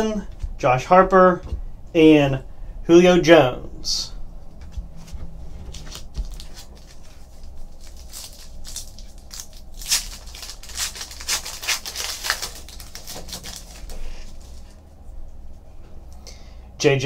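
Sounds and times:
foil wrapper crackling rips: 5.7 - 14.8.

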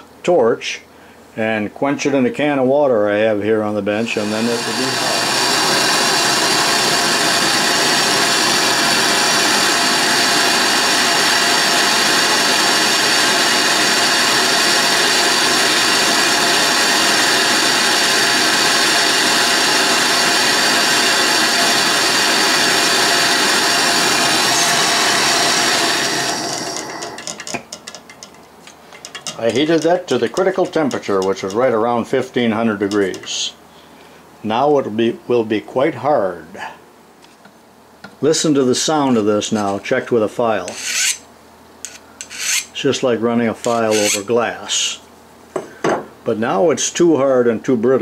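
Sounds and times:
gas torch hissing: 4.0 - 27.7, 40.5 - 41.2, 41.8 - 42.9, 43.6 - 45.0.

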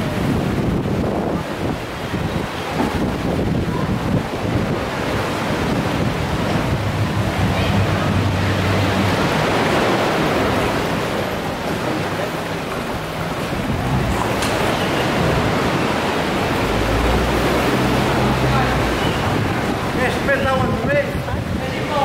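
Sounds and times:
sea surf: 0.0 - 22.0
wind: 0.0 - 22.0.

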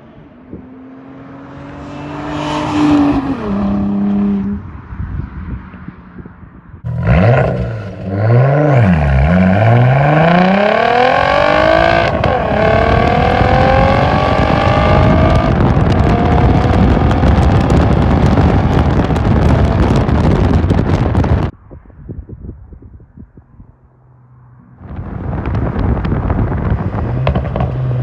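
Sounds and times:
wind and road noise: 0.0 - 28.0
car exhaust revving and accelerating: 6.8 - 21.6, 24.7 - 28.0.

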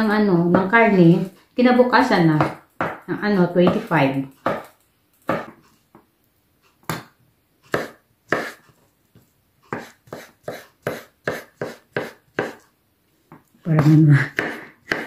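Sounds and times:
knife chopping on wooden board: 2.4 - 5.6, 7.7 - 8.6, 9.7 - 12.6, 13.7 - 15.0.

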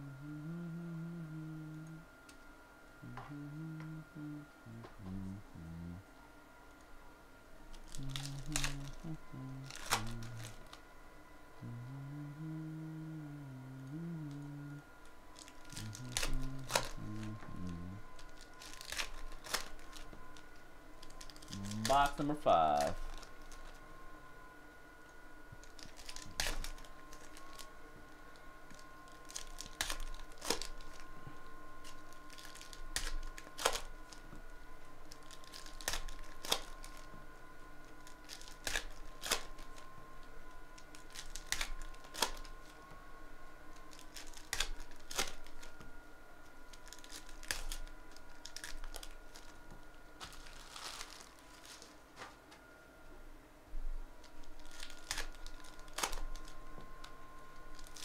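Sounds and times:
foil wrappers tearing and crinkling: 7.8 - 10.8, 15.4 - 20.4, 21.0 - 23.8, 25.6 - 27.7, 28.7 - 31.1, 31.8 - 34.3, 35.1 - 37.1, 37.8 - 39.8, 40.8 - 42.8, 43.8 - 45.7, 46.7 - 49.6, 50.2 - 52.3, 54.2 - 56.6, 57.6 - 58.0.

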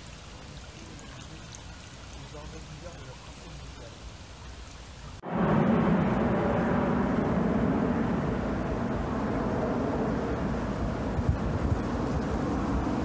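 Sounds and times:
aircraft rumble: 5.2 - 13.0.

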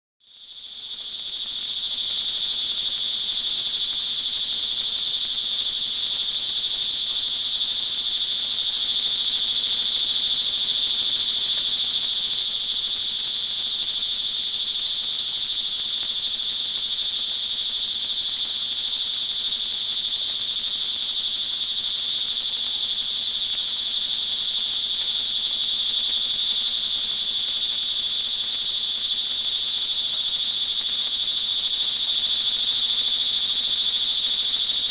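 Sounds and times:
crickets trilling: 0.3 - 34.9.

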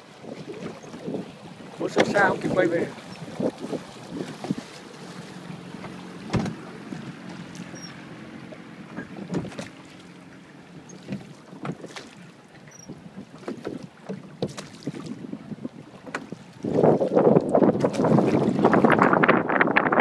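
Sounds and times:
wind on microphone: 0.0 - 8.0, 12.8 - 20.0
oars splashing and knocking: 0.0 - 19.5
outboard motor hum: 0.0 - 20.0.

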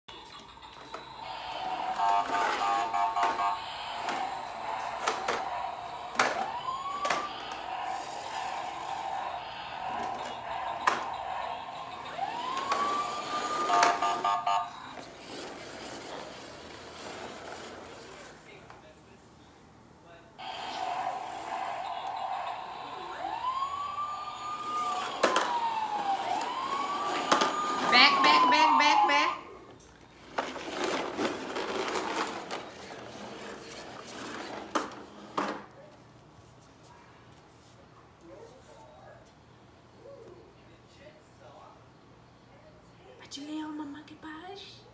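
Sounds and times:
toy siren with pulsing beep: 0.2 - 15.0, 20.4 - 29.4.

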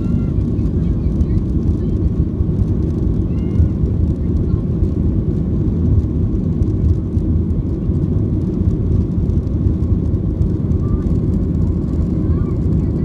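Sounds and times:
aircraft cabin engine noise: 0.0 - 13.0.

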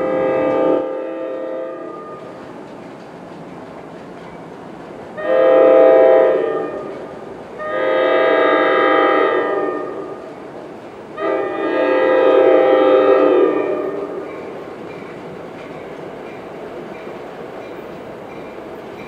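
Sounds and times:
train horn blasts: 0.0 - 2.3, 5.2 - 10.3, 11.1 - 14.3
low train rumble: 0.0 - 19.0.

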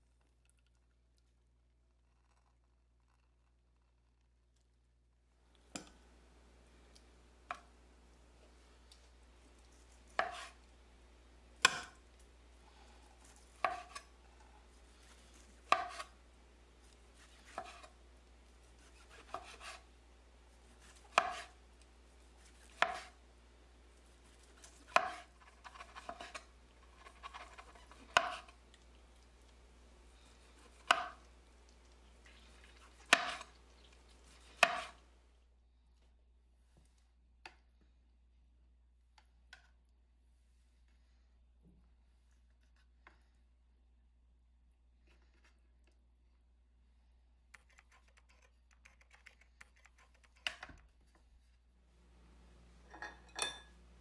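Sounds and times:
light tapping and scraping: 8.4 - 10.7, 12.8 - 16.2, 24.3 - 29.6.

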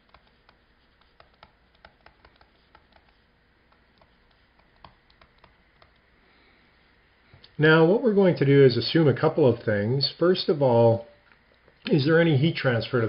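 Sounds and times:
stylus tapping on screen: 0.0 - 6.0.

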